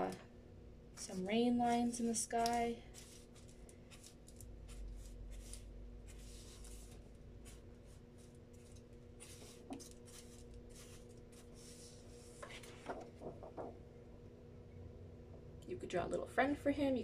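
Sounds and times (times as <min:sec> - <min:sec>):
marker scratching on paper: 0:03.0 - 0:12.4.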